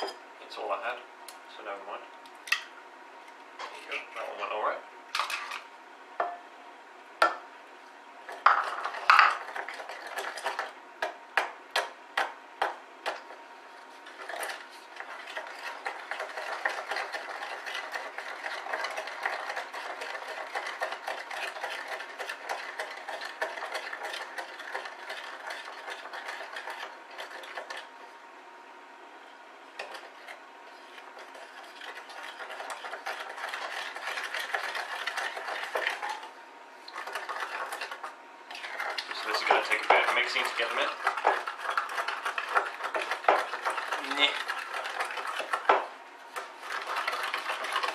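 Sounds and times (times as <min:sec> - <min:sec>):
wooden spoon scraping glass bowl: 0:36.9 - 0:45.7.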